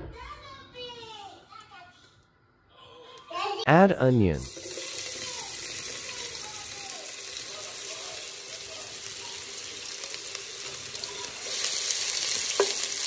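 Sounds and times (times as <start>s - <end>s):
onions sizzling in hot oil: 4.4s - 13.0s.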